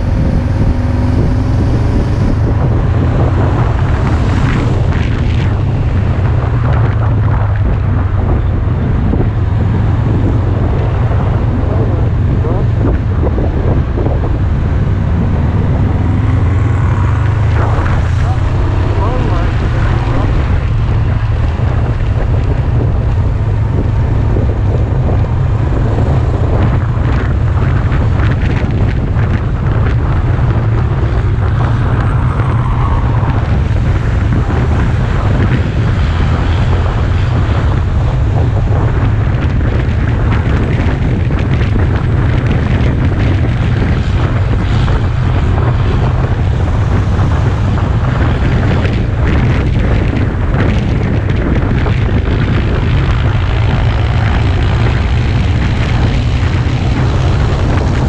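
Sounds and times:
motorcycle engine: 0.0s - 58.0s
road noise: 0.0s - 58.0s
wind rumble on microphone: 0.0s - 58.0s.

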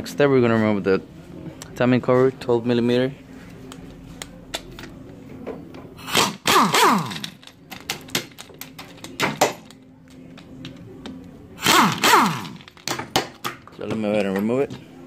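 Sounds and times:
power tool spinning bolts: 6.0s - 7.6s, 11.6s - 12.9s.

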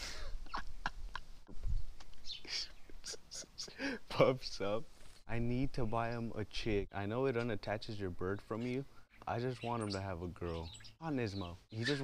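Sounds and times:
cockatiel chirping: 11.7s - 12.0s.

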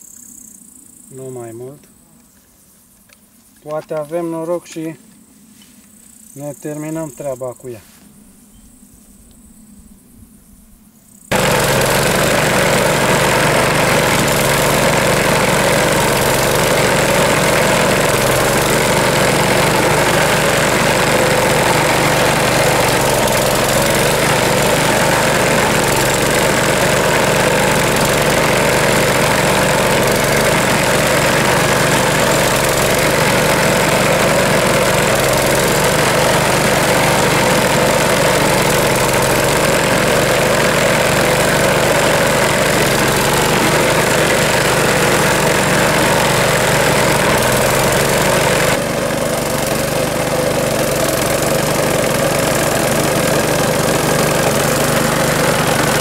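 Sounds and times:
lawn mower engine running: 11.3s - 56.0s.

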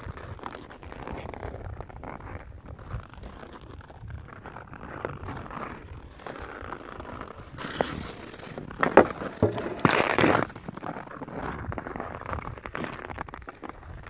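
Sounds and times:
skates scraping on ice: 0.0s - 14.0s
hockey stick clacking on puck: 7.7s - 10.5s.

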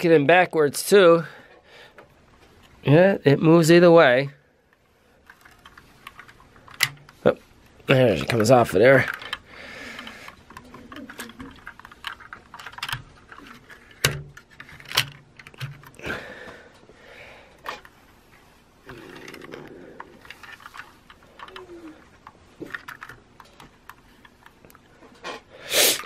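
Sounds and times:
plastic toy clicks and knocks: 5.3s - 7.2s, 8.2s - 16.0s, 18.9s - 24.6s.

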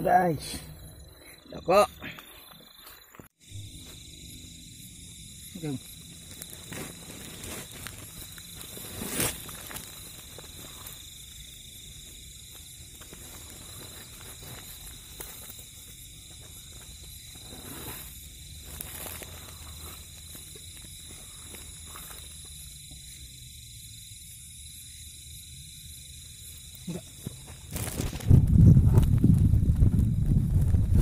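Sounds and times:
night insects chorus: 0.0s - 31.0s
sharp crackle: 5.3s - 22.5s, 26.7s - 31.0s
hands rustling a nylon net: 6.2s - 10.8s.

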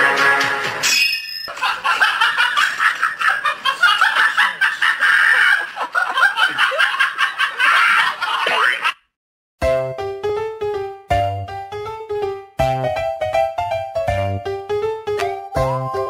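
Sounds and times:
people giggling: 1.5s - 9.0s.

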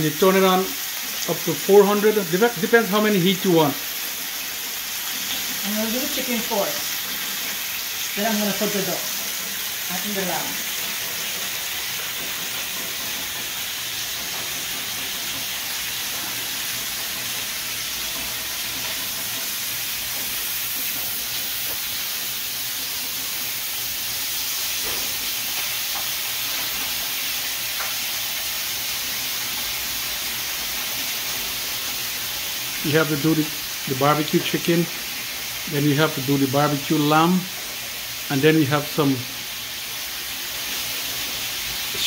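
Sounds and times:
chicken sizzling on grill: 0.0s - 42.0s.

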